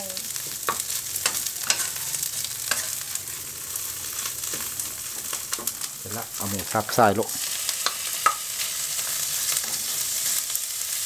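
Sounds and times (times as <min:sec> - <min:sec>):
paste sizzling in hot oil: 0:00.0 - 0:11.0
wooden spatula scraping a wok: 0:00.4 - 0:05.9, 0:07.3 - 0:10.5.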